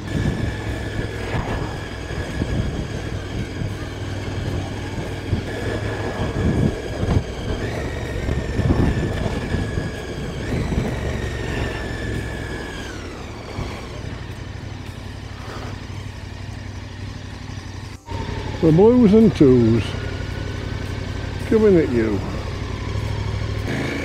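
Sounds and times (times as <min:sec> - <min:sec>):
wind buffeting microphone: 0:00.0 - 0:14.8
motorcycle engine running: 0:00.0 - 0:24.0.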